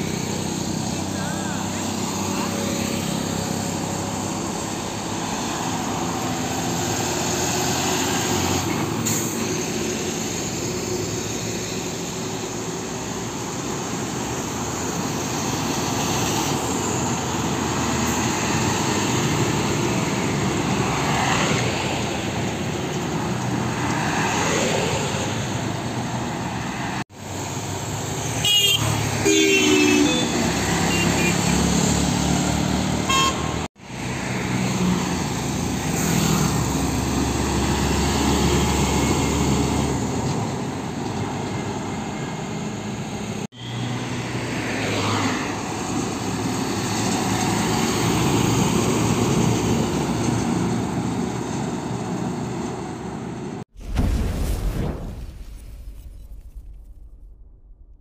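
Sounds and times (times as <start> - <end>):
highway traffic passing: 0.0 - 53.8
car horn honking: 28.4 - 31.6, 33.0 - 33.7.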